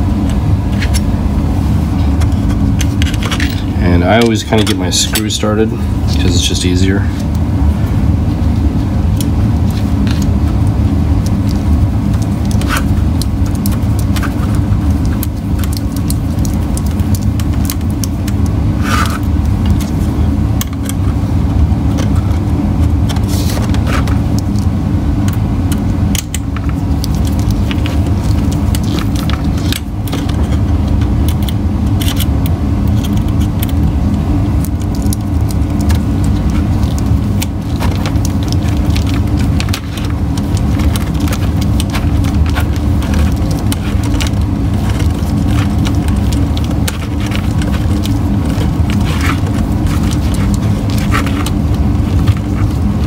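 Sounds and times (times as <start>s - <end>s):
steady low hum: 0.0s - 53.0s
plastic parts handled: 25.3s - 53.0s.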